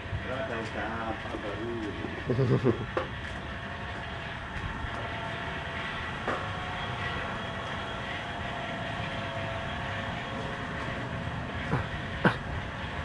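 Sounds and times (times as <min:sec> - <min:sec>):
mechanical hum: 0:00.0 - 0:13.0
street noise: 0:00.0 - 0:13.0.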